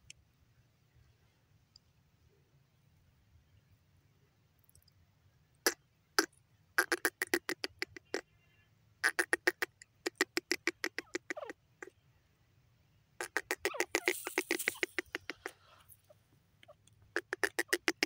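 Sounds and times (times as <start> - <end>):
francolin calling: 13.2 - 16.2.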